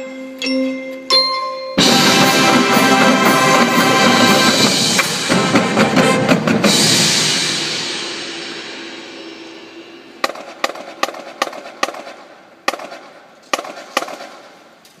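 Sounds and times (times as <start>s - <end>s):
cymbal shimmer: 1.8s - 10.6s
marching band final hit: 1.8s - 12.3s.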